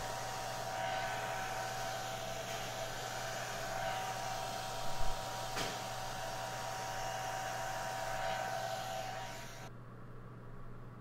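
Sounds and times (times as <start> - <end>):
hair dryer whirring: 0.0 - 9.7.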